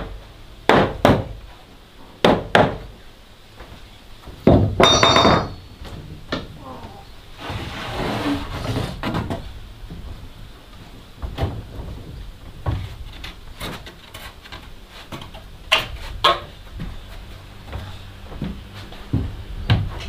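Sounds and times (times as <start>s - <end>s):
wood-on-wood knocks: 4.4s - 5.6s
wood scraping: 5.9s - 20.0s.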